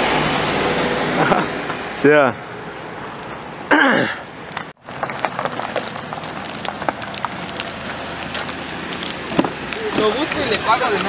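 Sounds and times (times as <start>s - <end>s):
footsteps crunching on gravel: 4.8s - 11.0s.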